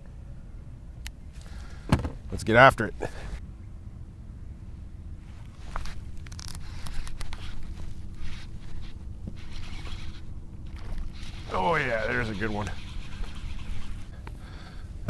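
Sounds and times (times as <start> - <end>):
faint hum: 0.0 - 15.0
scraping and rustling of line: 5.2 - 15.0
fishing reel cranking: 6.3 - 14.2.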